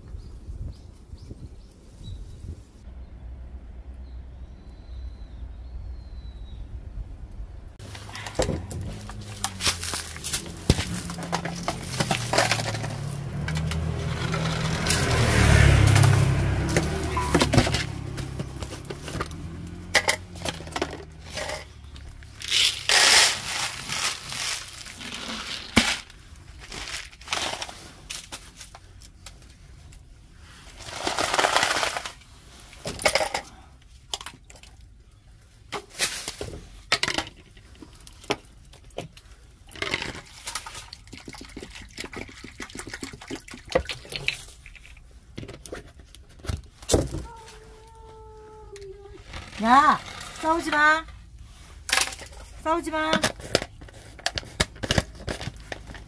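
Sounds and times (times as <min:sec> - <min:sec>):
rustling and clattering handling: 0:07.8 - 0:15.1
low drone shifting in pitch: 0:12.8 - 0:18.2.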